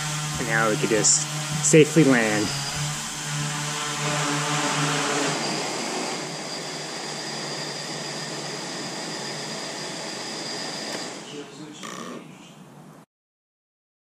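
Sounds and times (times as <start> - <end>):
drone propellers buzzing: 0.0 - 10.0
rotor whirr with high whine: 0.0 - 11.4.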